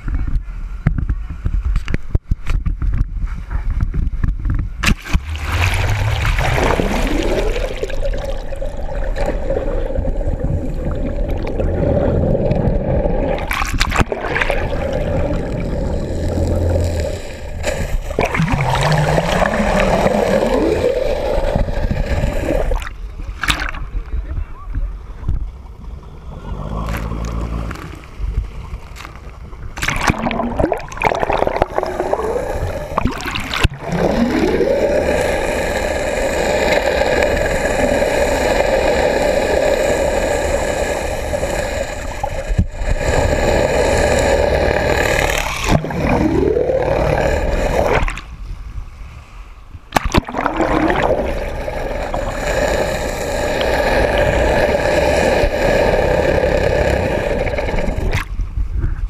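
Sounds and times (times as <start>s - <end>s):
water gurgling and bubbling: 4.8s - 24.2s, 25.8s - 48.4s, 49.8s - 59.0s
underwater boat engine whine: 25.6s - 28.3s.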